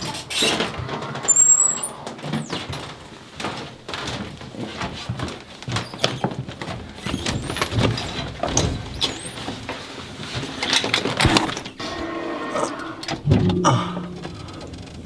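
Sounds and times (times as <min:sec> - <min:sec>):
high squeaks: 0:01.2 - 0:02.6.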